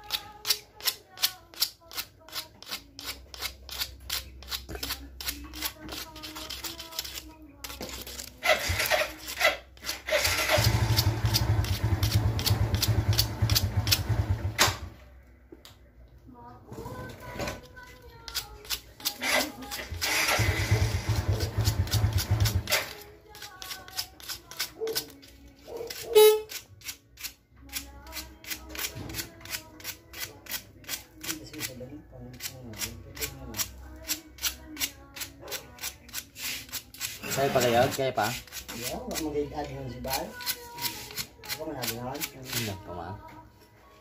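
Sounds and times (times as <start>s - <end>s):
wire winding scratchy strokes: 0.1s - 14.0s, 18.3s - 31.7s, 35.2s - 39.4s
small motorcycle engine running: 9.9s - 14.9s, 19.2s - 22.9s.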